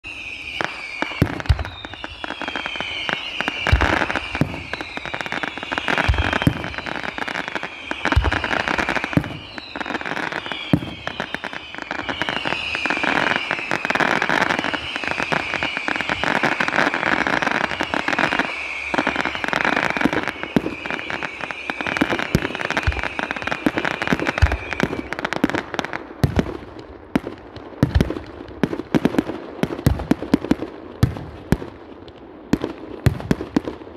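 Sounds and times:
falling whistles: 0.0s - 25.6s
firework crackling: 0.1s - 33.9s
firework pops: 3.6s - 4.9s, 6.0s - 6.8s, 27.2s - 33.8s.

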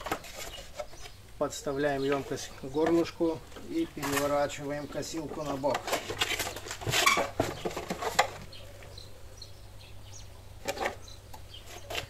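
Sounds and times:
lawn mower knocking and clattering: 2.8s - 8.6s.

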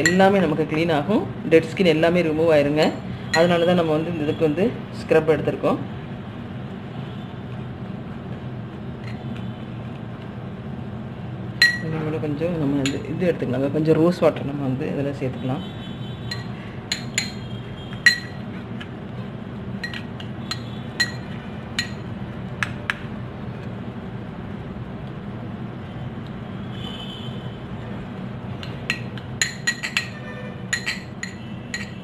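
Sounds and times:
metal spoon clinking glass bowl: 11.6s - 11.9s, 12.8s - 13.1s, 16.3s - 18.5s, 19.8s - 22.1s, 28.6s - 32.0s.

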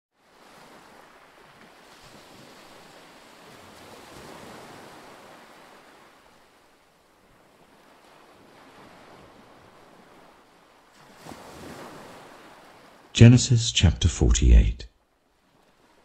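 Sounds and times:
waves breaking on rocky shore: 0.4s - 13.1s.

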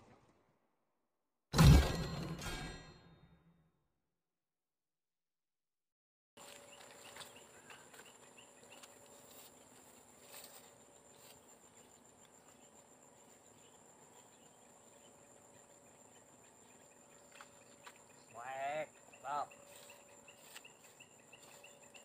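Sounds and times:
faint chirps: 6.4s - 22.0s
high-pitched insect drone: 6.4s - 22.0s.

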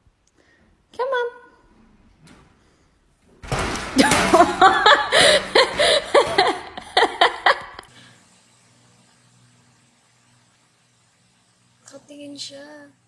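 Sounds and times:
person laughing hard: 4.0s - 7.9s.

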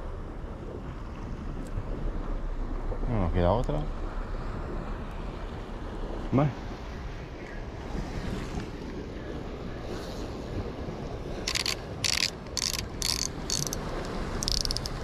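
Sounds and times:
surf: 0.0s - 15.0s
wind: 0.0s - 15.0s
fishing reel rasping: 11.4s - 15.0s.

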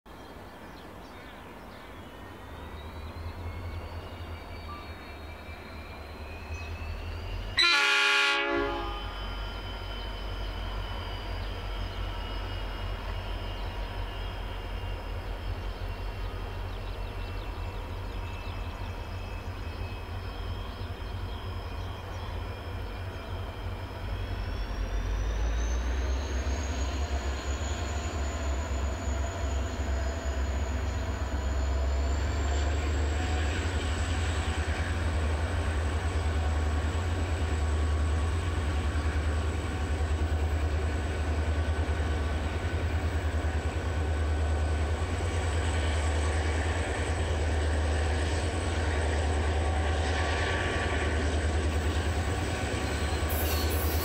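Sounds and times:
locomotive engines whining: 2.0s - 54.0s
train horn blast: 7.6s - 9.4s.

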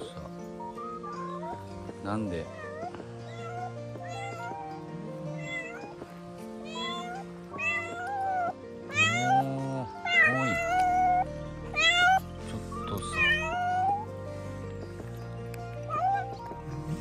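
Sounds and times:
background music: 0.0s - 17.0s
cat meowing: 0.6s - 1.6s, 2.4s - 6.0s, 6.6s - 14.1s, 15.8s - 16.5s.

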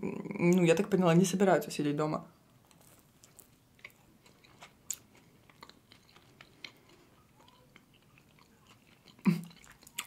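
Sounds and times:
chewing with mouth clicks: 2.7s - 10.0s.

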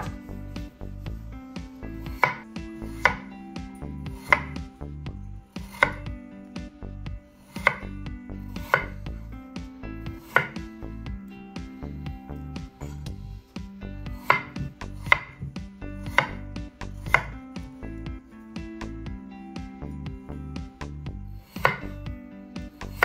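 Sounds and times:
knife striking wooden board: 2.1s - 2.4s, 3.0s - 3.2s, 7.6s - 7.8s, 10.3s - 10.6s, 14.2s - 15.3s, 21.6s - 21.9s.

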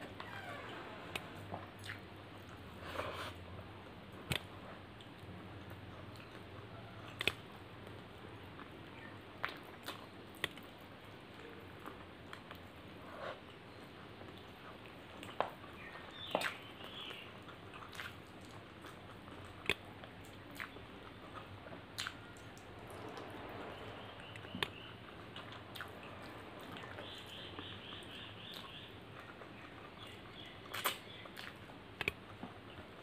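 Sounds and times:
person chewing food: 1.1s - 33.0s
mouth clicks and lip smacks: 1.8s - 2.6s, 6.1s - 8.0s, 28.4s - 32.9s.

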